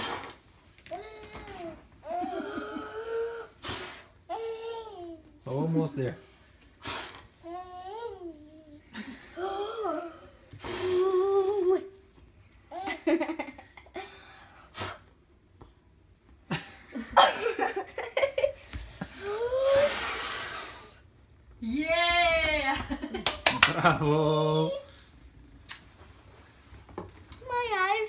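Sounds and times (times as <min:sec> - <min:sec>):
person blowing out candles: 0:02.8 - 0:04.1, 0:10.6 - 0:11.2, 0:19.3 - 0:21.0.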